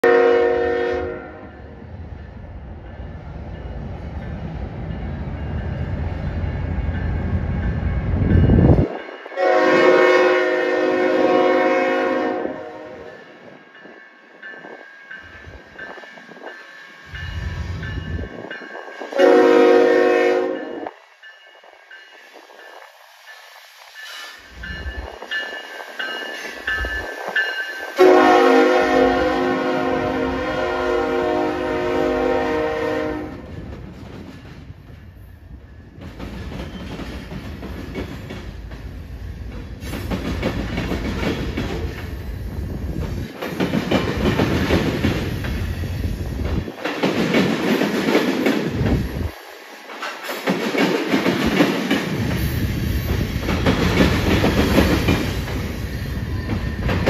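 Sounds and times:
locomotive air horn: 0:00.0 - 0:01.6, 0:09.4 - 0:13.1, 0:19.1 - 0:20.8, 0:28.0 - 0:33.4.

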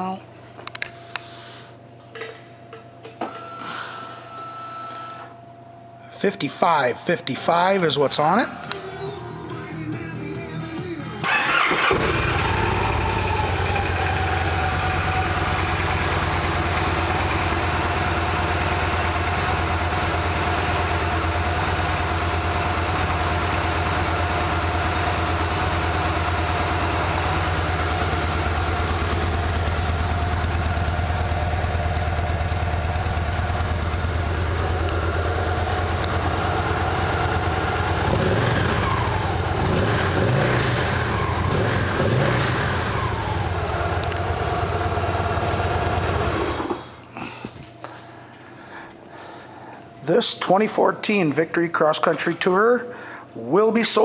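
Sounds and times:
motorcycle engine idling: 0:11.2 - 0:46.5.

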